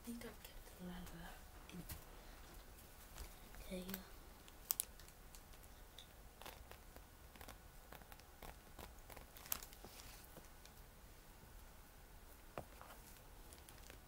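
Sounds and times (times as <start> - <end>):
faint rustling: 0.0 - 14.0.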